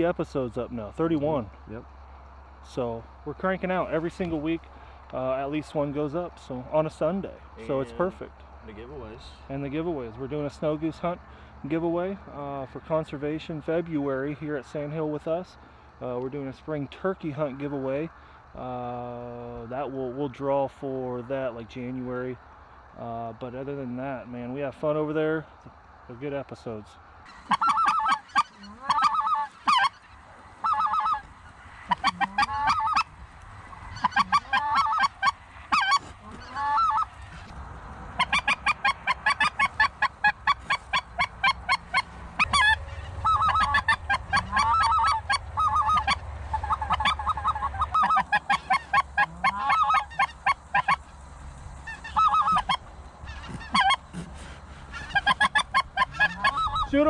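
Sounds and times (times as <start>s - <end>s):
goose honking and clucking: 27.3s - 37.5s, 38.1s - 51.2s, 51.8s - 57.0s.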